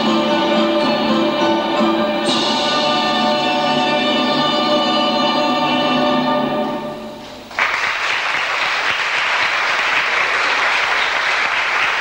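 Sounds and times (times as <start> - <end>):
music held chord: 0.0 - 7.4
audience applauding: 7.5 - 12.0.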